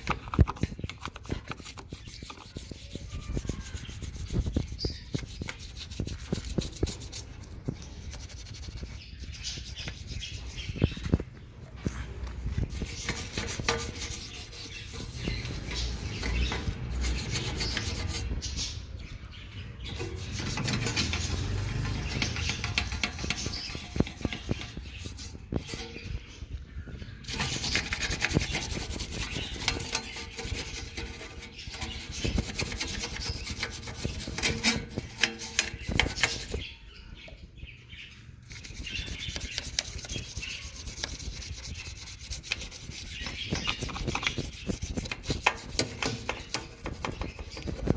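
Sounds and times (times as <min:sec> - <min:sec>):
toothbrush scrubbing metal: 0:00.0 - 0:11.0, 0:12.6 - 0:18.6, 0:19.8 - 0:26.3, 0:27.2 - 0:36.7, 0:38.5 - 0:47.9.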